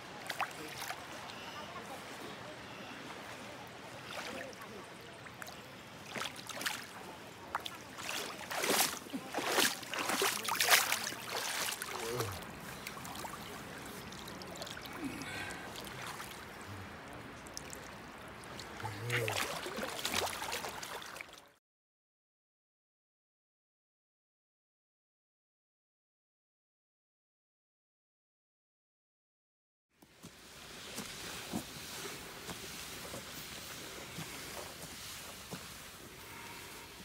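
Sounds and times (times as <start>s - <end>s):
stream flowing: 0.0s - 21.6s, 30.1s - 37.0s
fish thrashing and splashing: 7.6s - 16.6s, 17.5s - 21.4s.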